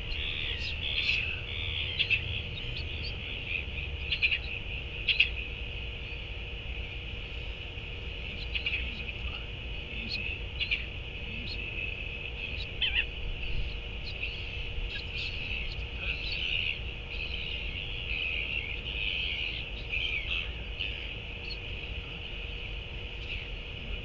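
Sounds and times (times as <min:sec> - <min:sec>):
high-pitched chirping chorus: 0:00.0 - 0:24.0
wind rumble on microphone: 0:07.1 - 0:24.0.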